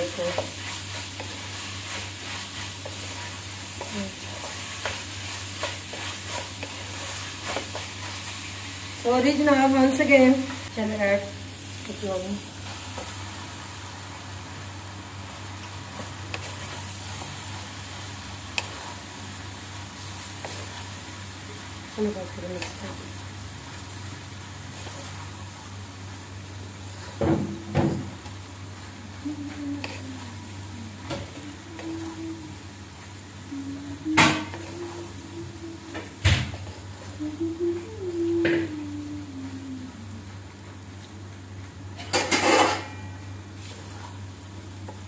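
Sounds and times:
food sizzling in frying pan: 0.0s - 45.0s
steady low hum: 0.0s - 45.0s
low hum: 27.5s - 36.2s, 37.0s - 40.8s.

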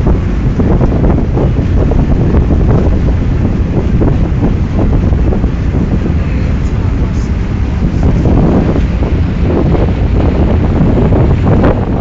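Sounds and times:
water rushing along boat: 0.0s - 12.0s
wind buffeting microphone: 0.0s - 12.0s.

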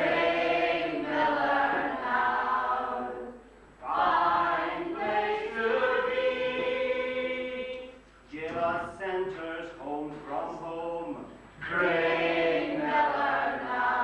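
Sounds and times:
group singing: 0.0s - 8.0s, 11.6s - 14.0s.

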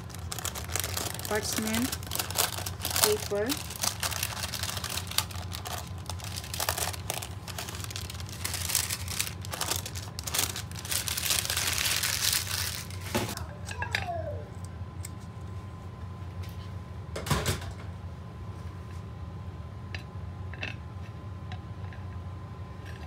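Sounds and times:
parchment paper crinkling: 0.0s - 13.4s.

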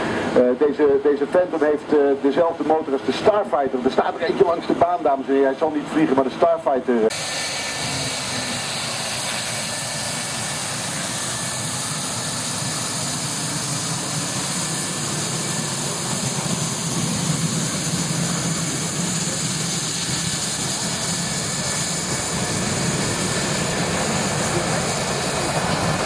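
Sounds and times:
jet engine rumble and hiss: 0.0s - 26.0s.

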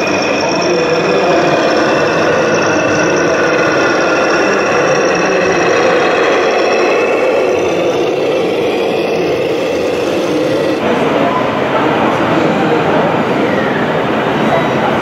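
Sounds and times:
model truck engine running: 0.0s - 10.9s.

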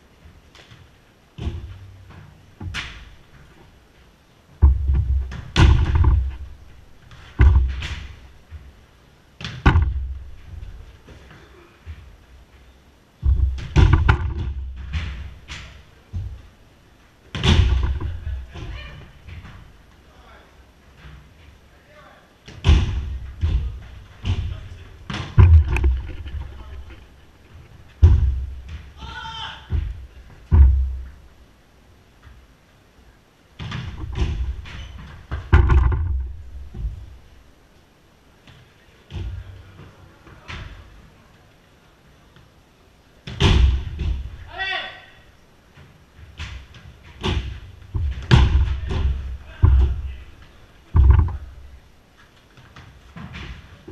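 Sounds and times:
ball thudding against walls: 0.5s - 3.7s, 4.6s - 8.8s, 9.4s - 12.3s, 13.2s - 16.6s, 17.2s - 19.9s, 22.4s - 31.4s, 33.6s - 37.4s, 43.2s - 44.5s, 45.7s - 51.9s.

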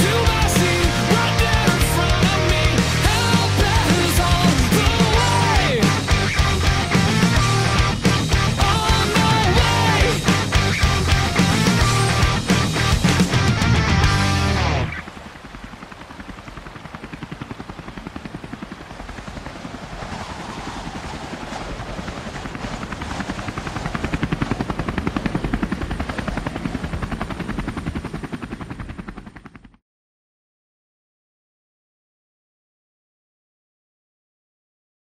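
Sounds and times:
helicopter rotor blade beats: 0.0s - 29.8s.

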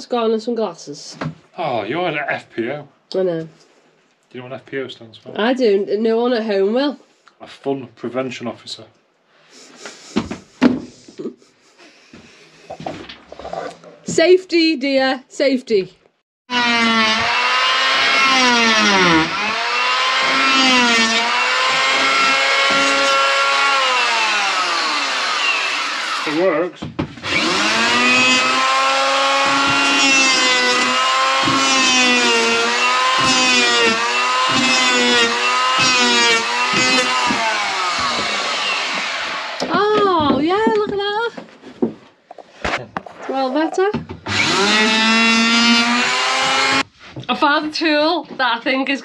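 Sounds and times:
electric planer cutting wood: 16.5s - 39.8s, 44.3s - 46.9s.

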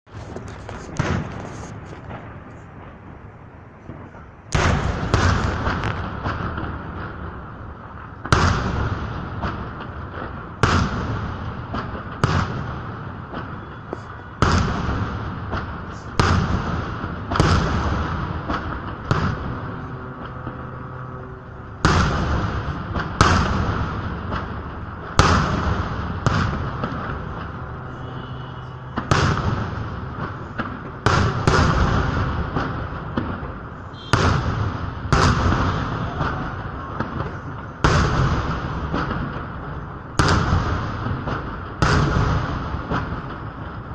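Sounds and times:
firework shells bursting: 0.1s - 3.1s
rumble after bangs: 0.1s - 43.9s.

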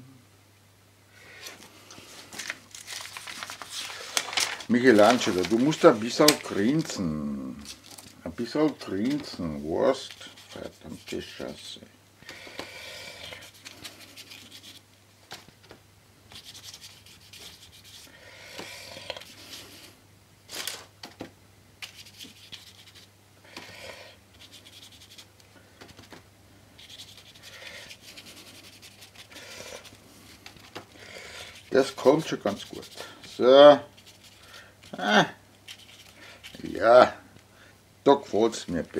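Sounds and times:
paintbrush scrubbing on paper: 8.5s - 11.7s, 13.2s - 14.8s, 16.3s - 19.9s, 21.8s - 23.1s, 24.3s - 25.3s, 26.8s - 35.0s, 35.7s - 36.7s.

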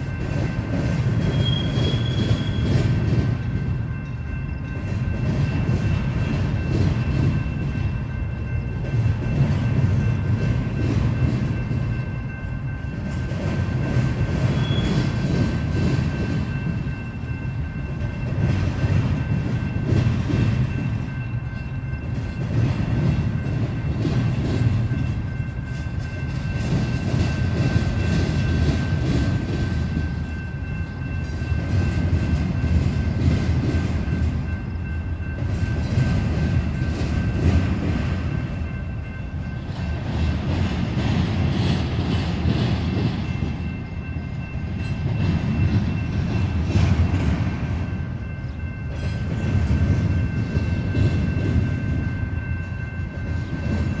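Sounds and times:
freight train rumbling on rails: 0.0s - 54.0s.

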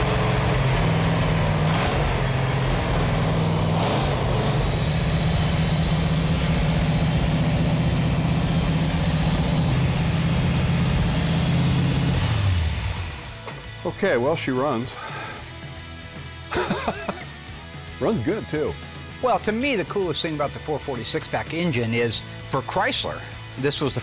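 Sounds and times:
car engine idling: 0.0s - 13.6s.

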